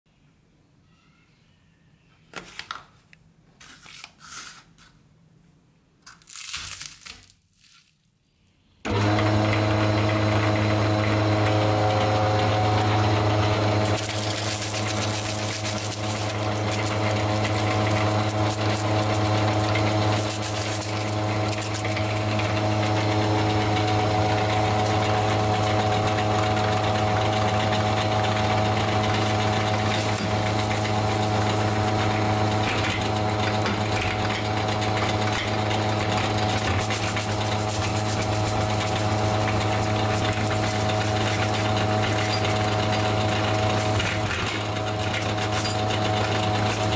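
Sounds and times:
gritty crunching of cones: 0:06.0 - 0:08.2, 0:13.8 - 0:33.6, 0:35.1 - 0:46.9
meat grinder motor humming: 0:08.9 - 0:46.9.

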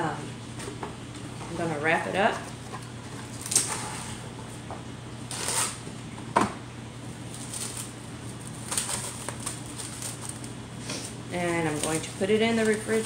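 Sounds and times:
steady low hum: 0:00.0 - 0:13.0
plastic wrap crinkling: 0:07.3 - 0:13.0.

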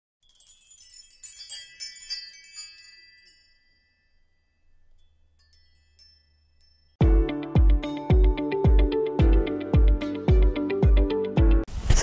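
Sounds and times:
sparkling chime and bell tinkles: 0:00.2 - 0:07.0.

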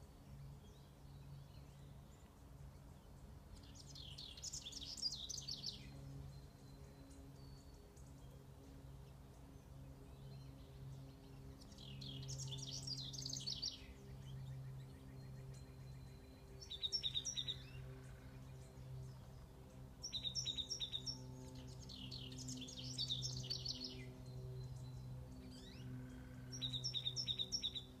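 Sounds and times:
songbirds singing: 0:00.0 - 0:28.0.

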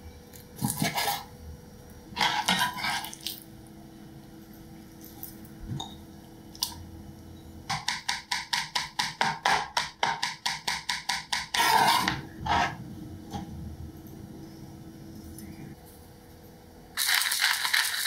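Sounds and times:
blade scraping across board: 0:00.8 - 0:01.3, 0:02.2 - 0:03.1, 0:11.6 - 0:12.8
knife chopping on wooden board: 0:07.7 - 0:12.2.

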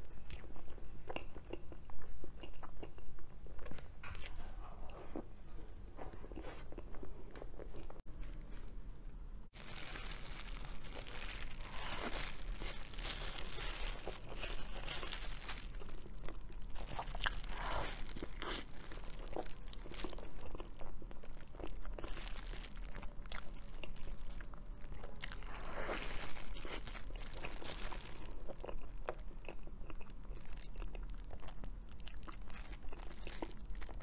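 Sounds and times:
chewing and wet mouth sounds: 0:00.0 - 0:05.3, 0:09.7 - 0:34.0
plastic film crinkling: 0:09.5 - 0:20.5, 0:22.0 - 0:24.4, 0:25.4 - 0:28.6.

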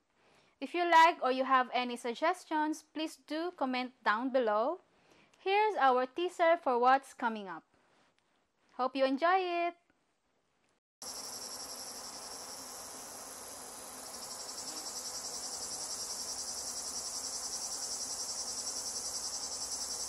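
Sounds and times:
insects chirring: 0:11.0 - 0:20.0.

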